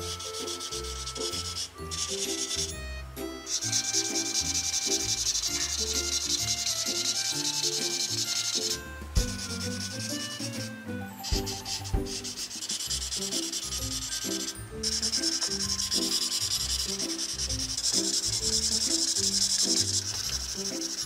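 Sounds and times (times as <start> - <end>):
marker scrubbing on paper: 11.3 - 14.1.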